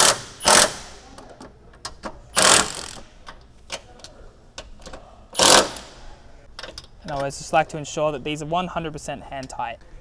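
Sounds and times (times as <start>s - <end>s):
ratchet wrench clicking: 0.0s - 0.8s, 2.4s - 3.0s, 5.4s - 5.9s.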